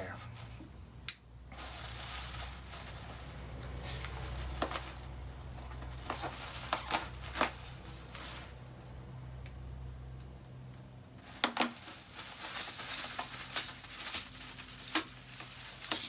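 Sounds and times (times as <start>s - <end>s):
bubble wrap rustling and crinkling: 1.5s - 8.7s, 11.2s - 16.0s.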